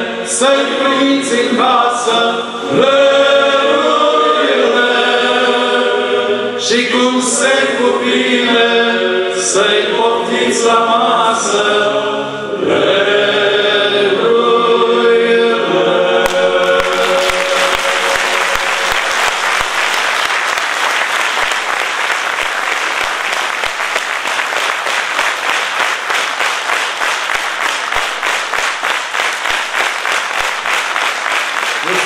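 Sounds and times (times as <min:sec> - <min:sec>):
male choir singing: 0:00.0 - 0:19.3
audience applause: 0:16.3 - 0:32.0.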